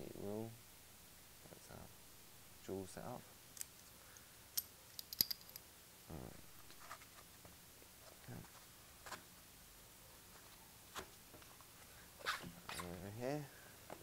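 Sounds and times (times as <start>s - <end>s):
faint clicks and scrapes: 6.6s - 9.2s.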